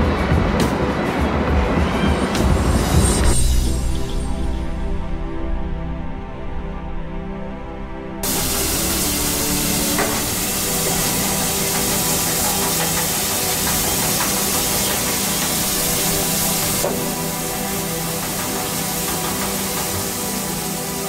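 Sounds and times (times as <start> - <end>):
steam hissing: 8.2 - 21.0.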